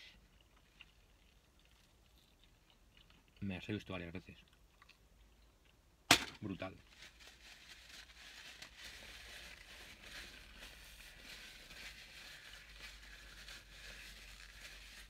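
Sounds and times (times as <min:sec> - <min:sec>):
soft chewing: 0:00.1 - 0:03.6, 0:04.2 - 0:05.9
paper napkin rustling: 0:06.9 - 0:15.0.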